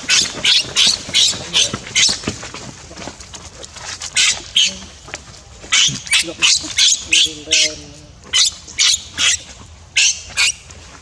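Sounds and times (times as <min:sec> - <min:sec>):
baby monkey squealing: 0:00.1 - 0:02.2, 0:04.2 - 0:04.9, 0:05.7 - 0:09.4, 0:10.0 - 0:10.6.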